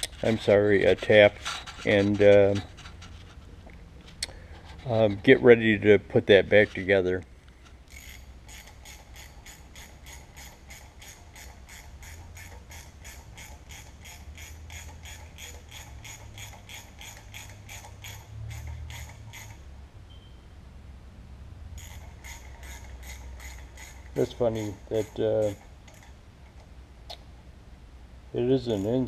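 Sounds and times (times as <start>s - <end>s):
ratchet wrench clicking: 7.9s - 19.7s, 21.8s - 26.2s, 28.7s - 29.0s.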